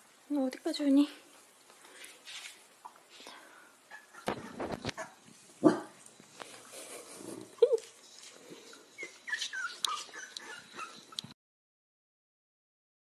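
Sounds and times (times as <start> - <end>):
puppies whimpering and squeaking: 3.9 - 5.3, 7.6 - 11.4
puppy yip: 9.0 - 11.4.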